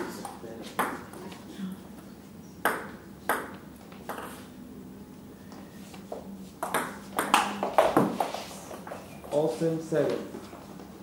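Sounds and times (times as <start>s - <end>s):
table tennis ball hits: 0.2s - 1.1s, 2.6s - 4.4s, 6.6s - 8.4s.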